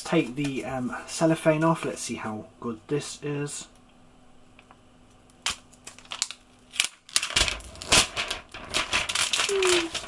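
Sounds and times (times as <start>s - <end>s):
plastic wrap crinkling: 5.3s - 10.0s.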